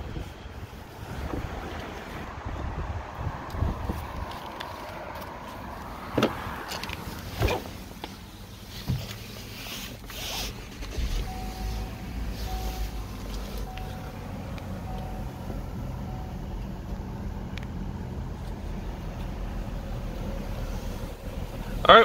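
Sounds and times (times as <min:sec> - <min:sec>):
car warning chime: 0:11.2 - 0:16.8.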